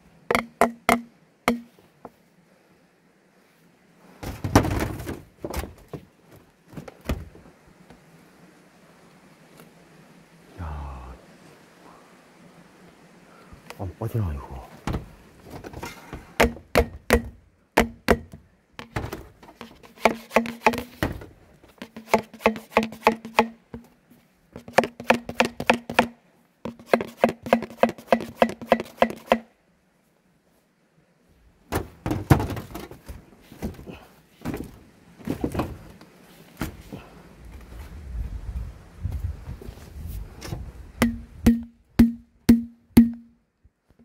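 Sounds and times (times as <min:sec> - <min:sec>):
hammer tapping metal: 0:00.3 - 0:01.7, 0:41.0 - 0:43.3.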